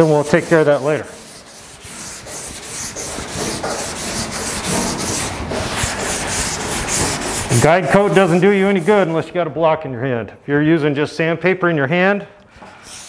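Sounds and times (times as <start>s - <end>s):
sanding block rasping on metal: 0.0s - 9.2s.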